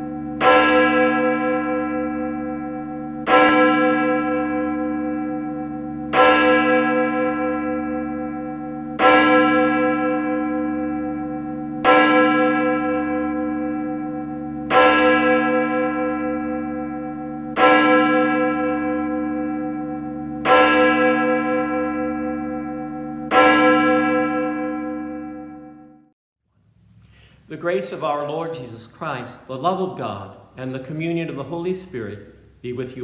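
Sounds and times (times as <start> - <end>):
church bell tolling: 0.0 - 26.1.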